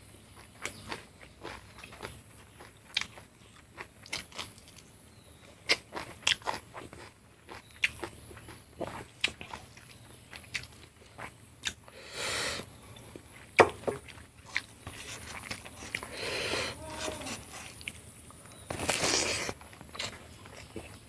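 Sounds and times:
chewing with wet lip smacks: 0.3s - 11.9s
breathy hissing sounds: 11.9s - 12.7s, 16.0s - 17.6s.

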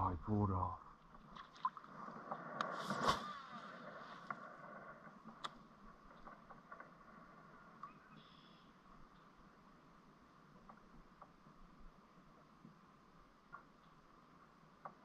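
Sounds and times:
brief rush of noise: 2.7s - 3.8s.

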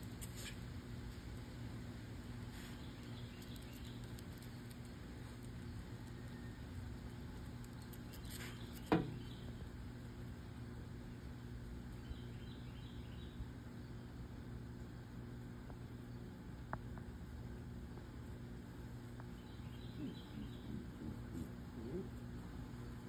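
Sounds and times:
low machine hum: 0.0s - 23.0s
bird chirps: 19.3s - 22.0s.

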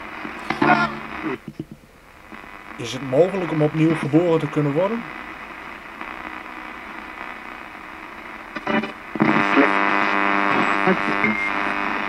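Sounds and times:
steady humming tone: 0.0s - 4.3s
radio static hissing: 0.0s - 12.0s.

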